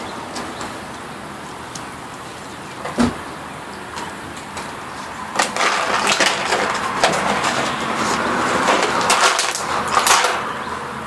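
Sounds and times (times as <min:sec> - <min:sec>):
plastic bottle crackling: 0:05.3 - 0:10.4
bottle scraping on wooden boards: 0:05.4 - 0:10.2.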